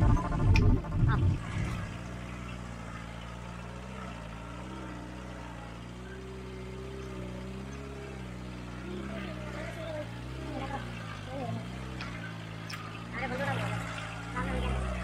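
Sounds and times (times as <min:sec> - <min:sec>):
jeep engine running at low revs: 0:00.0 - 0:15.0.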